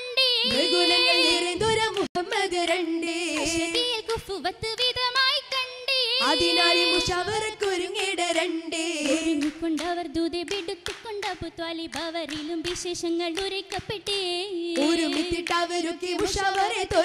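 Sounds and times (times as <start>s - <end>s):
high voices singing: 0.0s - 9.9s
hand claps: 9.0s - 14.2s, 14.8s - 17.0s.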